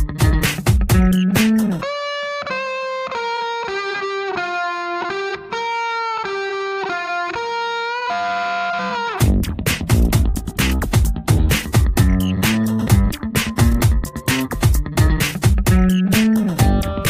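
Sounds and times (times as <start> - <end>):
drum beat: 0.0 - 1.8, 9.2 - 17.0
melody of held notes: 12.0 - 17.0.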